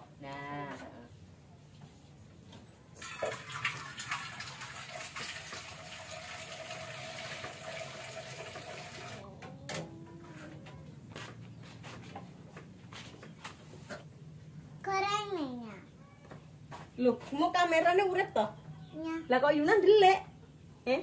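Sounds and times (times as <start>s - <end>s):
water running: 3.0s - 9.2s.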